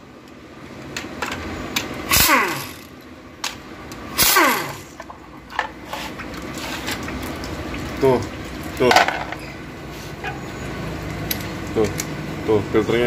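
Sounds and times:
impact wrench whirring: 0:02.0 - 0:03.0, 0:04.1 - 0:05.1.

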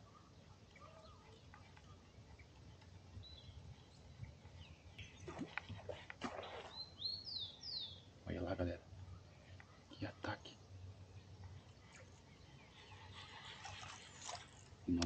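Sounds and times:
birds chirping: 0:00.0 - 0:14.4
fish splashing on water: 0:05.2 - 0:06.8.

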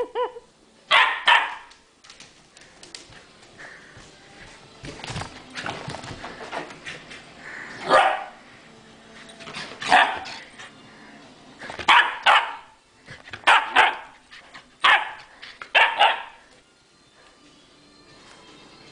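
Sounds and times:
puppy barking: 0:00.0 - 0:01.7, 0:07.8 - 0:08.4, 0:09.8 - 0:10.4, 0:11.9 - 0:12.8, 0:13.4 - 0:14.2, 0:14.8 - 0:16.4.

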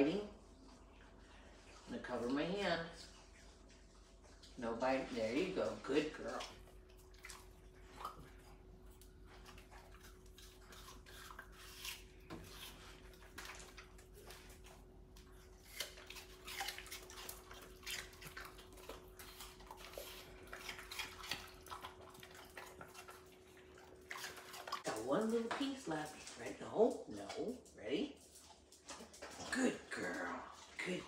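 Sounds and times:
dogs chewing wet crunching: 0:00.1 - 0:31.0.

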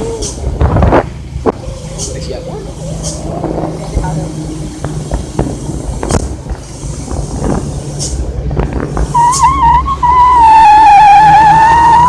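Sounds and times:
vehicle running with road noise: 0:00.0 - 0:12.0
wavering high whistle tone: 0:09.2 - 0:12.0.

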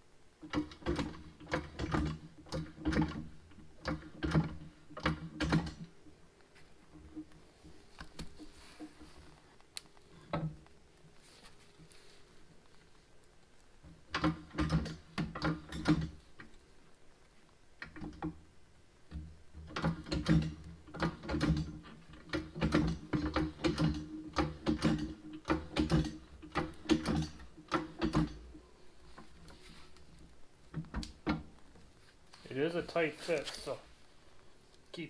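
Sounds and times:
floor jack pumping with clicks: 0:00.4 - 0:06.0, 0:13.8 - 0:16.6, 0:19.1 - 0:31.6.

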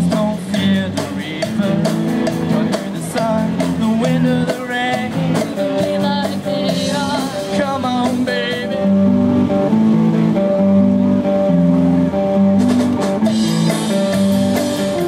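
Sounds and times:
drum kit: 0:00.0 - 0:15.0
electric guitar: 0:00.0 - 0:15.0
girl singing lead vocal: 0:05.6 - 0:07.6.

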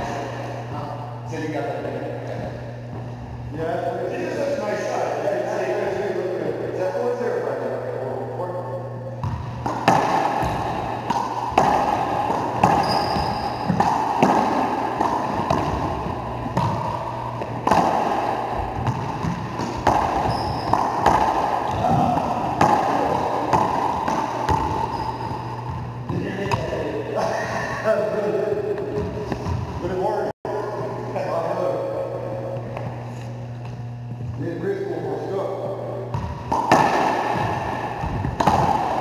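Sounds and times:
racquetball hits echoing: 0:09.2 - 0:28.0, 0:28.6 - 0:30.0, 0:35.7 - 0:39.0.

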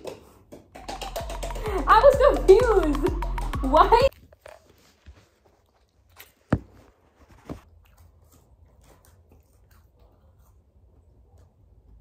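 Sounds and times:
chewing and crunching: 0:04.1 - 0:06.5, 0:07.6 - 0:11.8.

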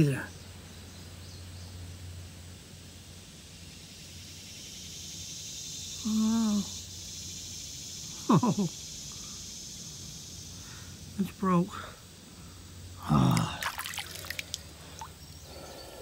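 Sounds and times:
high-pitched insect drone: 0:03.6 - 0:16.0
person humming: 0:13.0 - 0:13.7.

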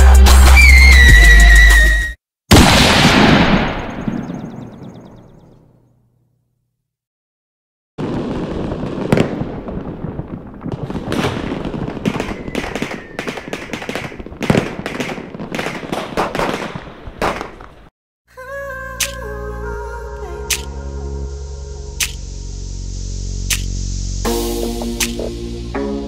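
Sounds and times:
fireworks cracking and banging: 0:08.0 - 0:17.9.

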